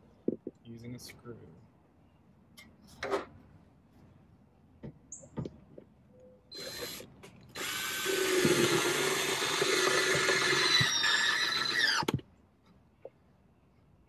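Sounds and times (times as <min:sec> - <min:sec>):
cordless drill driving screw: 0:06.5 - 0:12.2.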